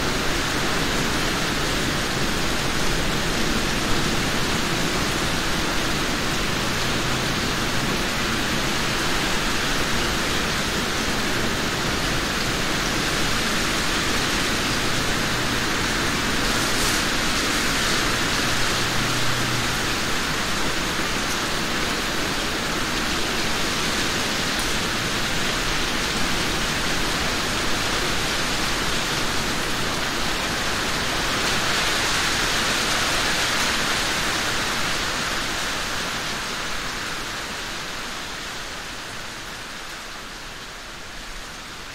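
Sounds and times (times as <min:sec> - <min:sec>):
rain falling on trees: 0:00.0 - 0:41.9.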